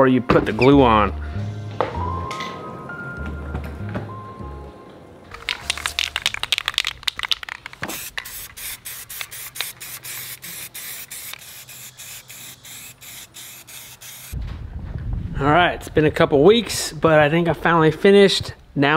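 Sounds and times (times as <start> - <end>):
aerosol can rattling: 5.3 - 14.4
aerosol spray hissing in bursts: 7.4 - 14.4.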